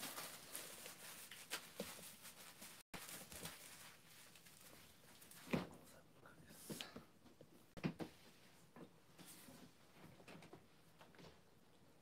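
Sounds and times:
cellophane rustling: 0.0s - 5.4s.

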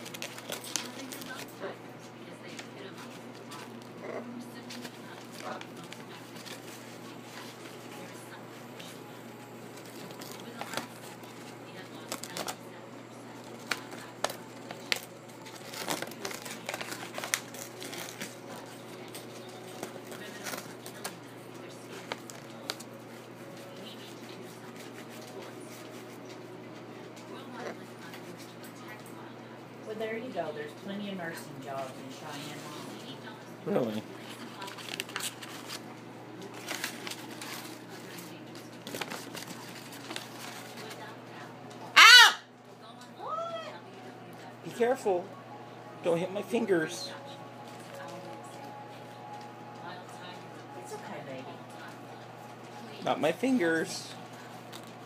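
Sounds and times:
parrot tearing paper: 0.0s - 1.5s, 13.6s - 21.2s, 34.2s - 35.8s, 36.5s - 41.1s, 42.0s - 42.4s.

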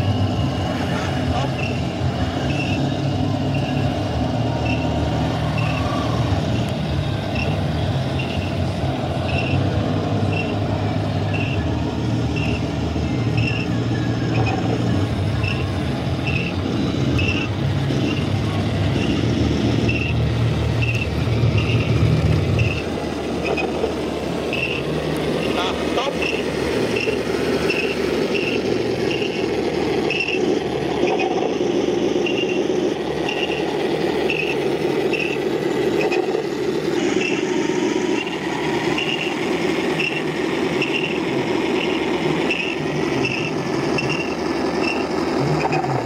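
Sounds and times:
model tank rumbling: 0.0s - 46.0s.

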